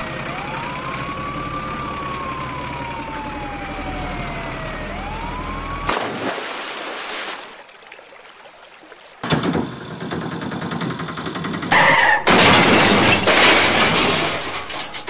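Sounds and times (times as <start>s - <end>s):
siren wailing: 0.0s - 6.0s
low engine hum: 0.0s - 6.3s
loud splash into water: 5.9s - 8.2s.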